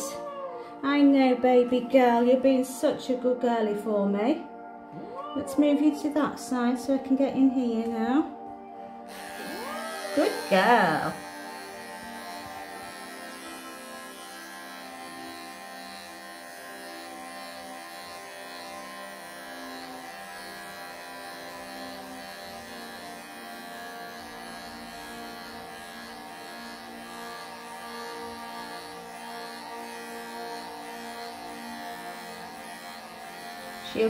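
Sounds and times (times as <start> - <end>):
droning background music: 0.0 - 34.0
electric clippers buzzing: 9.0 - 34.0.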